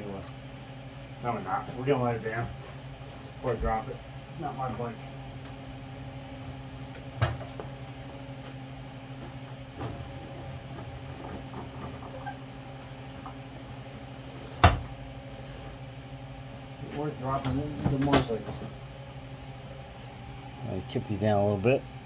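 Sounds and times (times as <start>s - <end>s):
steady low hum: 0.0s - 22.0s
faint high whine: 9.9s - 13.3s.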